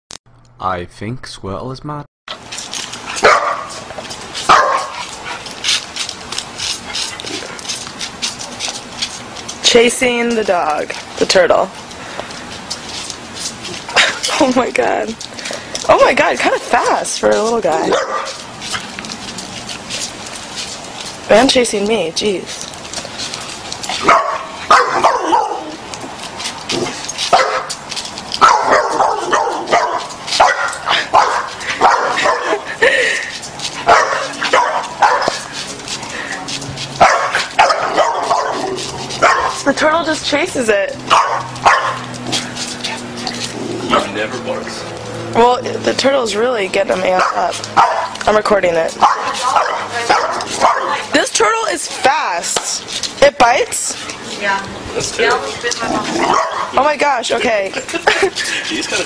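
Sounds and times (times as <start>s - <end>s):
scratchy clicks and scuffs: 2.3s - 59.0s
dog barking and yipping: 3.0s - 9.3s, 16.0s - 21.2s, 23.1s - 32.8s, 33.6s - 39.8s, 40.7s - 44.5s, 47.0s - 52.6s, 55.2s - 56.9s
dog barking: 3.2s - 3.8s, 4.5s - 5.0s, 17.9s - 18.4s, 24.0s - 25.8s, 27.3s - 27.7s, 28.4s - 32.6s, 33.8s - 35.4s, 37.0s - 39.6s, 41.1s - 42.1s, 47.2s - 48.2s, 49.0s - 51.0s, 56.2s - 56.8s.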